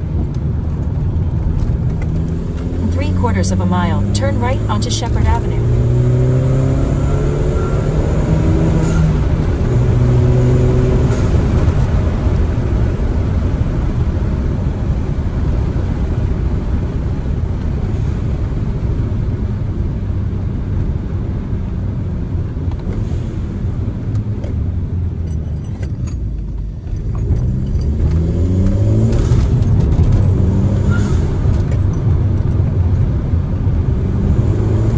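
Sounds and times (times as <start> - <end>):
car engine drone: 0.0 - 34.9
road noise: 0.0 - 34.9.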